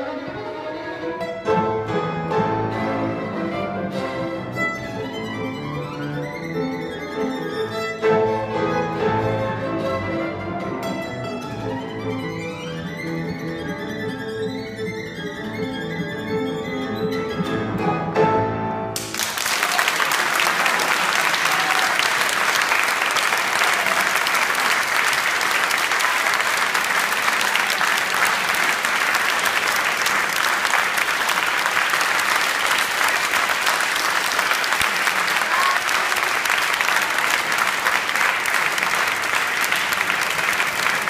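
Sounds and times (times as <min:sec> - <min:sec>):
violin and piano note: 0:00.0 - 0:19.0
audience applause: 0:19.0 - 0:41.0.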